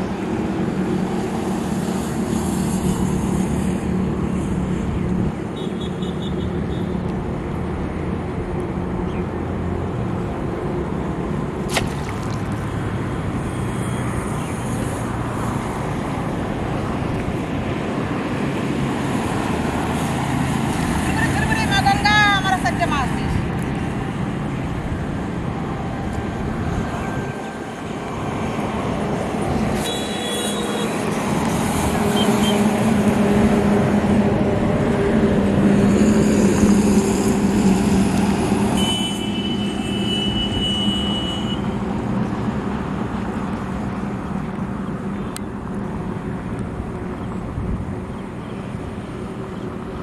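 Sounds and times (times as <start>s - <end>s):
traffic noise: 0.0s - 50.0s
vehicle engine drone passing: 6.6s - 29.8s, 30.4s - 38.8s.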